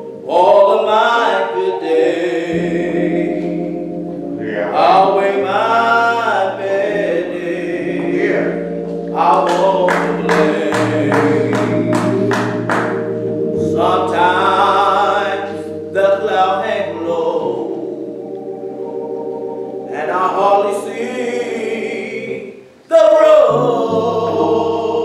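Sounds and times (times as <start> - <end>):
man singing gospel: 0.2 - 3.7, 4.4 - 13.0, 13.6 - 18.1, 19.9 - 25.0
sustained low chords: 2.5 - 20.6
sharp evenly spaced beats: 7.9 - 13.6.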